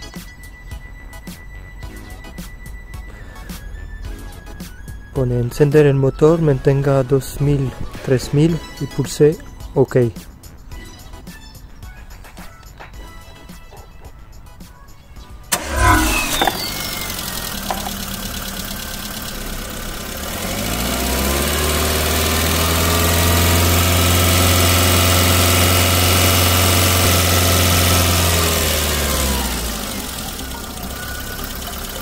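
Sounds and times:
car engine idling and revving: 0.0s - 5.2s, 15.4s - 32.0s
car engine cranking: 15.4s - 32.0s.

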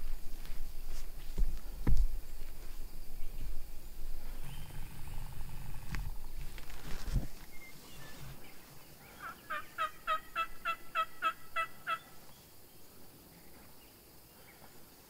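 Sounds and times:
wild turkey yelping: 9.0s - 12.2s.

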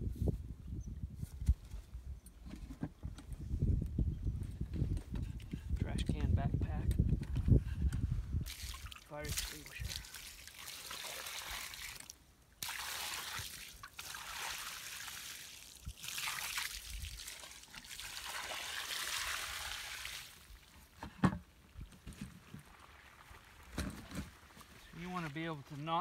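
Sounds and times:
water pouring onto ashes: 8.4s - 20.6s.

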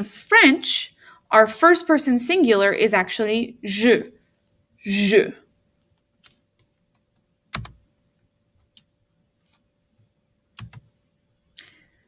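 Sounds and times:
faint steady hum: 0.0s - 12.0s
computer mouse clicks: 5.8s - 7.8s, 10.6s - 10.9s.

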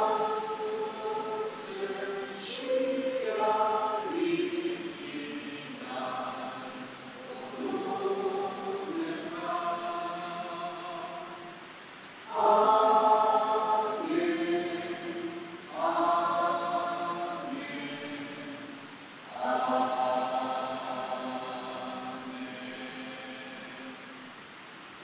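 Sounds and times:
congregation singing a hymn: 0.0s - 24.3s.

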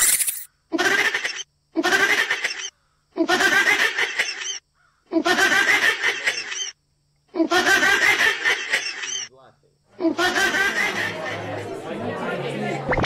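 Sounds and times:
frog screaming: 7.4s - 9.3s.

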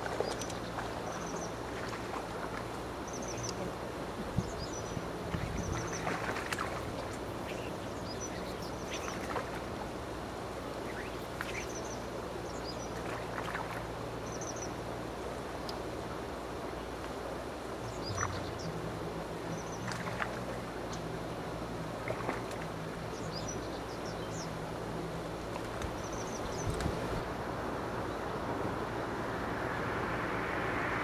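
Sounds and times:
small birds chirping: 0.0s - 9.9s, 10.6s - 14.8s, 17.8s - 18.8s, 22.1s - 24.6s, 25.6s - 27.1s.

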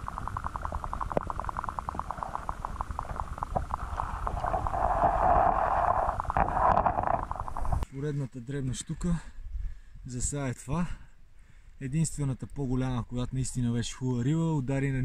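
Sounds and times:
rapid regular ticking: 0.0s - 7.8s
underwater rushing water: 0.0s - 7.8s.

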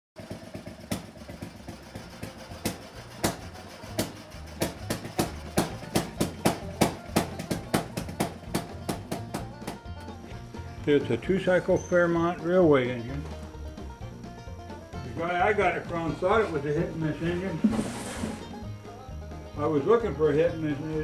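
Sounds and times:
sharp percussive hits: 2.2s - 9.8s.

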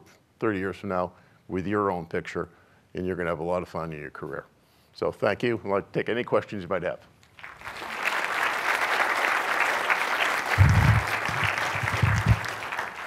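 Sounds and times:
audience applauding: 7.4s - 13.0s
low thumps: 10.6s - 12.5s.

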